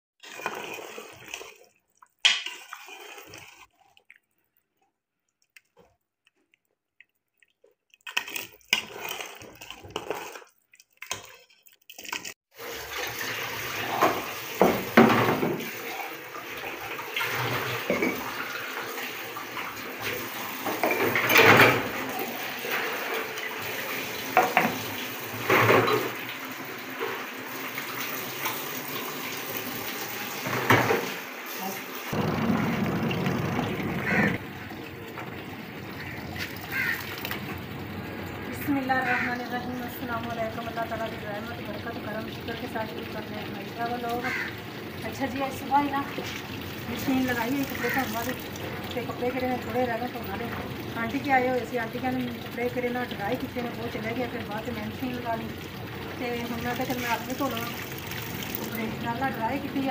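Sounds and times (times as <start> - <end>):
tap water running into sink: 12.6 - 59.9
pots and plates clinking: 17.3 - 18.4, 20.6 - 23.4.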